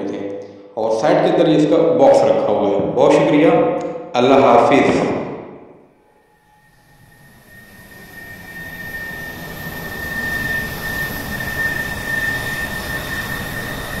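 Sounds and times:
steady high whine: 0:00.0 - 0:14.0.

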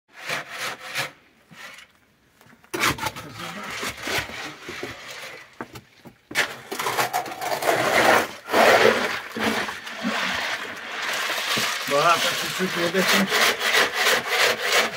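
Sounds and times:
shovel scraping gravel mix: 0:02.8 - 0:05.6, 0:06.3 - 0:14.9.

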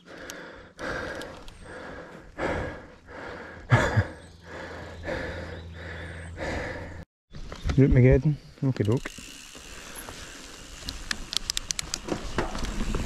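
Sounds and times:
person breathing hard: 0:00.0 - 0:07.1.

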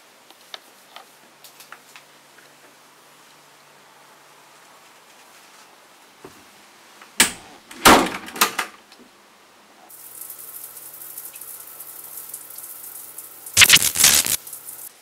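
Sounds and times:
shower spraying water: 0:09.9 - 0:15.0.

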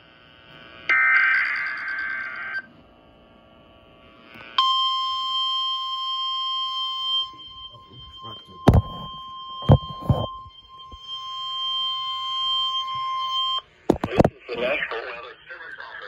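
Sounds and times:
steady warning alarm tone: 0:04.5 - 0:14.1
sharp knocks: 0:08.7 - 0:10.2, 0:13.9 - 0:14.3.

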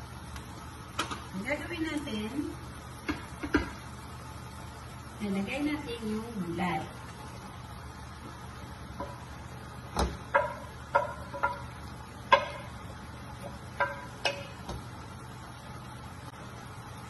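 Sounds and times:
faint steady hum: 0:00.0 - 0:17.0
wooden spoon knocking glass dish: 0:10.3 - 0:11.7, 0:13.8 - 0:14.4.

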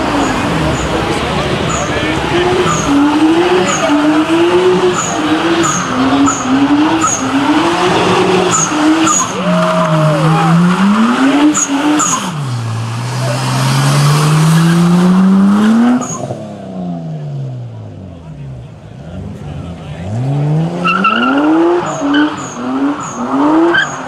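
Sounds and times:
tyres screeching: 0:00.0 - 0:16.4
car engine revving: 0:00.0 - 0:24.0.

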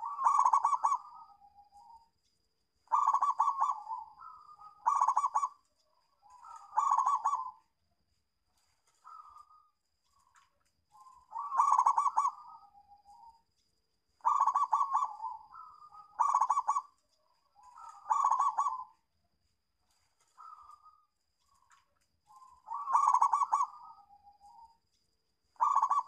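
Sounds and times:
dove cooing: 0:00.0 - 0:02.0, 0:02.9 - 0:07.7, 0:11.0 - 0:13.4, 0:14.2 - 0:19.0, 0:20.4 - 0:21.1, 0:22.3 - 0:24.7, 0:25.6 - 0:26.0.

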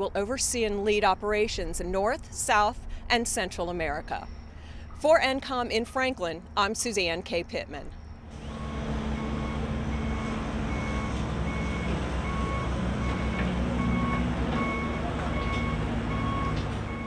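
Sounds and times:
building site noise: 0:00.0 - 0:17.0
diesel engine rumble: 0:08.2 - 0:17.0
reversing alarm beeping: 0:08.4 - 0:17.0.

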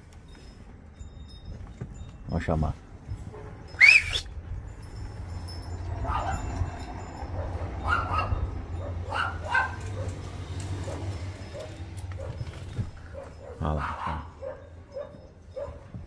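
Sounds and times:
dog barking: 0:06.0 - 0:06.4, 0:07.4 - 0:10.2, 0:13.1 - 0:15.9
dog yelping: 0:06.0 - 0:06.5, 0:07.4 - 0:10.2, 0:13.1 - 0:15.9.

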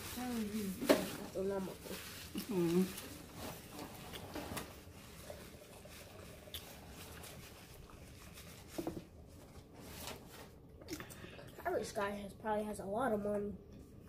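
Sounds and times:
paper wrapper crinkling: 0:00.0 - 0:10.6
burger being chewed: 0:02.3 - 0:08.4.

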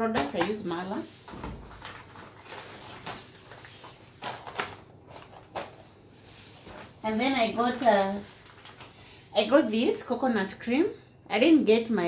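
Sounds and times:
plastic packaging rustling: 0:01.2 - 0:09.6.

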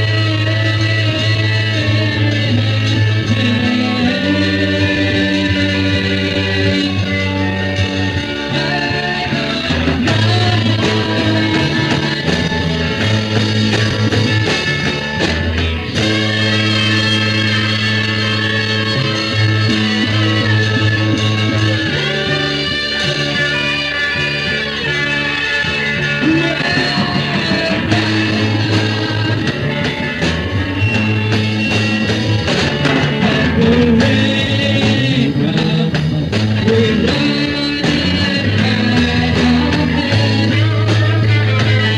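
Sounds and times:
person singing: 0:00.0 - 0:12.7, 0:26.2 - 0:30.0, 0:33.0 - 0:41.9
bass line: 0:00.0 - 0:41.9
electric guitar: 0:00.0 - 0:41.9
rock band playing: 0:00.0 - 0:41.9
drums struck: 0:04.2 - 0:17.7, 0:26.0 - 0:41.9
drum hits: 0:26.2 - 0:38.2.

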